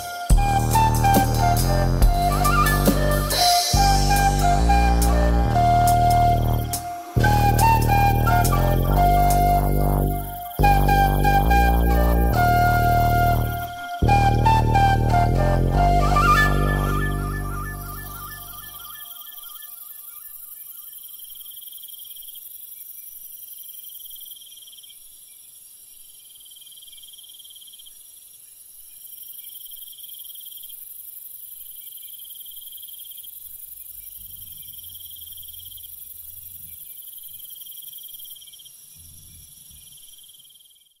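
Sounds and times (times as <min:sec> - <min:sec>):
insects trilling: 0:00.0 - 0:14.7, 0:17.6 - 0:41.0
steady high hiss: 0:00.0 - 0:24.4.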